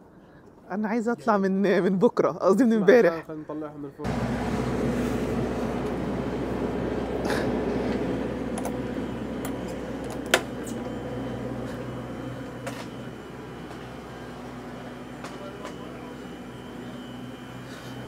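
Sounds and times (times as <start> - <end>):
mechanical hum: 3.7 - 18.0.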